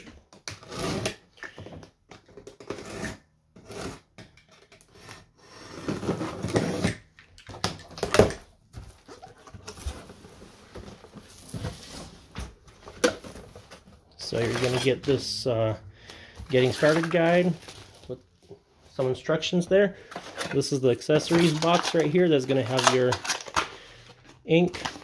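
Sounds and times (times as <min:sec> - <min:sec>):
packing tape tearing: 0:21.2 - 0:24.0.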